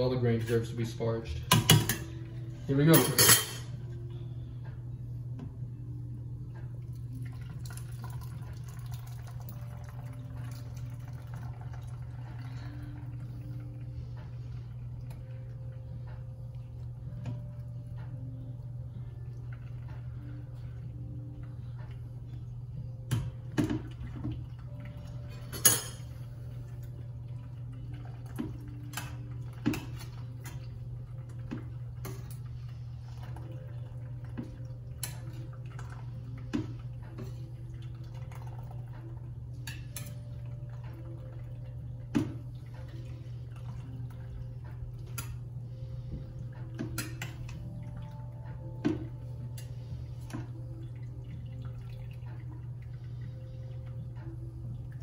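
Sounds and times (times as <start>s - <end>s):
metal pots clinking and scraping: 0.0s - 3.8s, 25.2s - 26.2s
steady low hum: 0.0s - 55.0s
liquid dripping: 6.6s - 15.6s.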